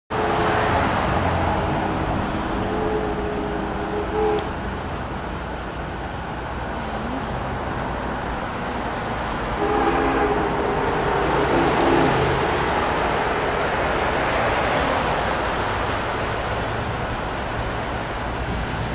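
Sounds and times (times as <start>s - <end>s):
steam locomotive whistle: 0.1s - 4.6s, 9.6s - 12.6s
city background noise: 0.1s - 18.9s.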